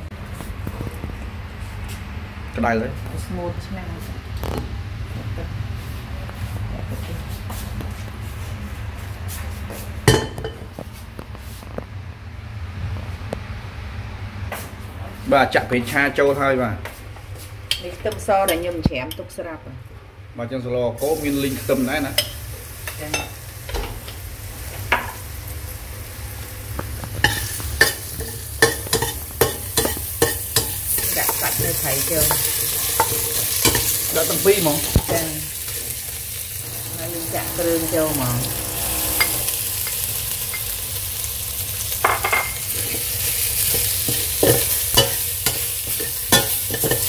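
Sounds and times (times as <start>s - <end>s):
aromatics sizzling in oil: 21.0s - 47.0s
steady low hum: 22.2s - 41.6s
metal utensil scraping pot: 27.2s - 35.9s, 36.6s - 40.7s, 42.1s - 47.0s.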